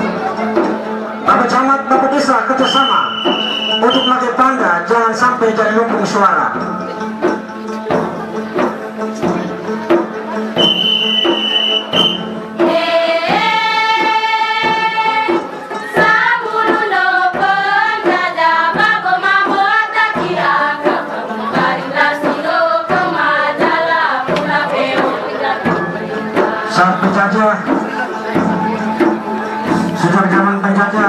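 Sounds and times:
percussion strikes: 0.0 - 31.0
group singing: 7.6 - 30.3.

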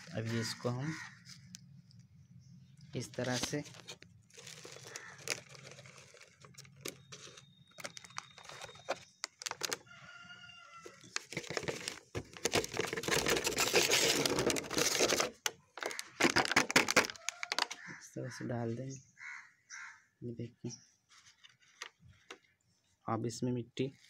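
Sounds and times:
bag crackling: 3.2 - 9.9, 11.0 - 17.7
rooster crowing: 9.9 - 11.0.

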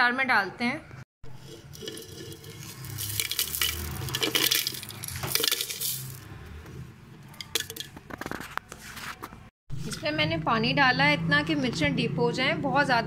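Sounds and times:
spices rattling into grinder jar: 1.3 - 6.2.

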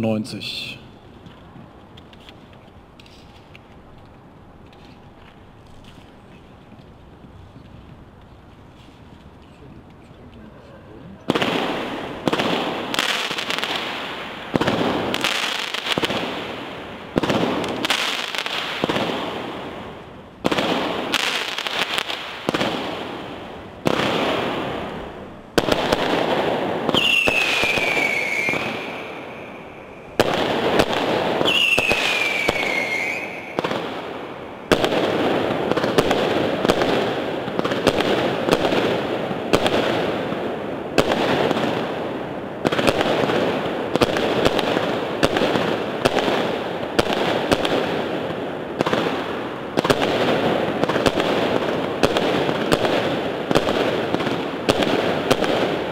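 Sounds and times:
fireworks crackling: 0.0 - 55.9
fireworks shots and bursts: 11.2 - 55.9
falling whistle: 27.0 - 29.0, 31.5 - 33.6.

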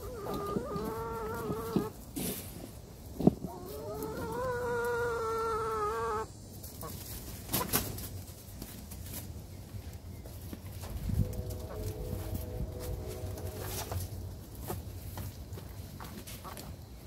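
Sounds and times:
hens calling: 0.0 - 2.1, 3.2 - 7.0.

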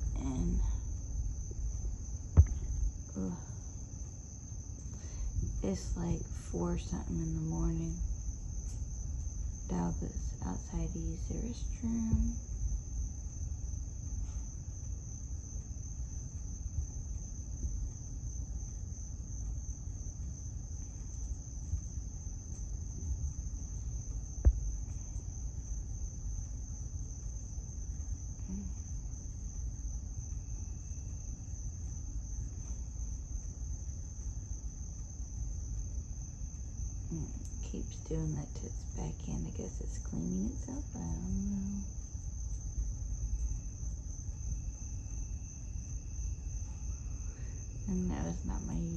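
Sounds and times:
crickets trilling: 0.0 - 48.9
low rumble: 0.0 - 48.9.

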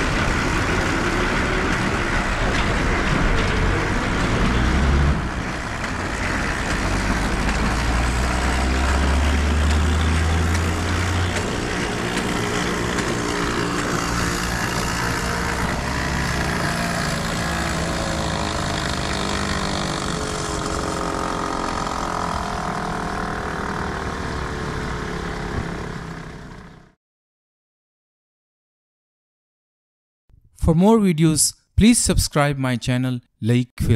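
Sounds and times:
cotton candy machine whirring: 0.0 - 26.9
street noise: 0.0 - 26.9.

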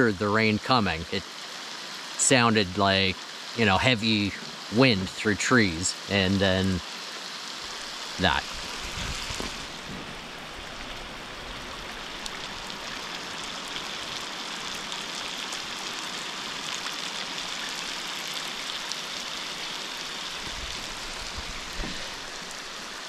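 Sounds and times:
heavy rain on water: 0.0 - 23.0
sharp raindrop ticks: 9.3 - 22.8.

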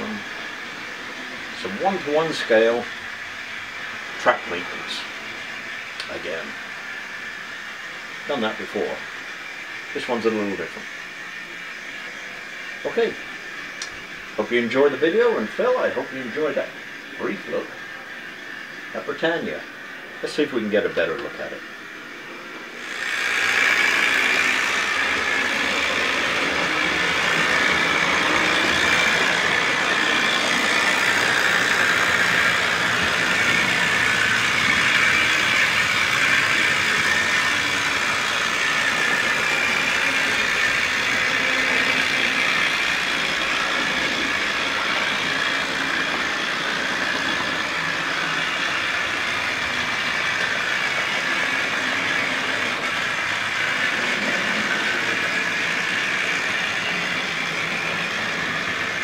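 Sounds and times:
model train motor whirring: 0.0 - 59.0.

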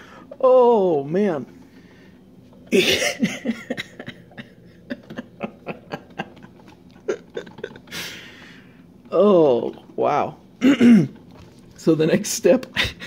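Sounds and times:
person chuckling: 2.7 - 8.2.

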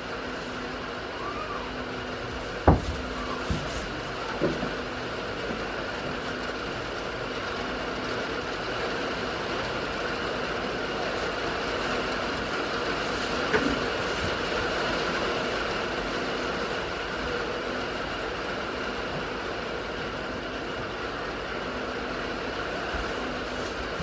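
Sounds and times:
faint hum: 0.0 - 8.6.

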